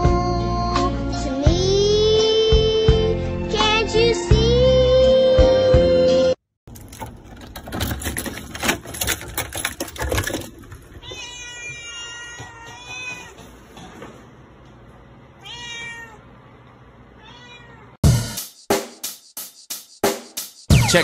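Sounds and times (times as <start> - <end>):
keys jangling in a door lock: 6.7 - 10.9
cat meowing: 11.0 - 13.4, 15.4 - 16.3, 17.2 - 18.0.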